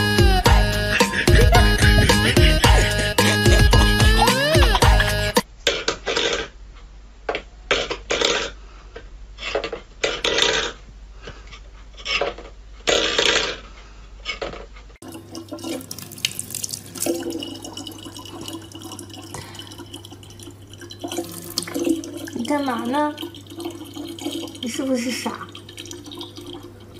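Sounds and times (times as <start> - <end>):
tap water running into bottle: 15.0 - 26.9.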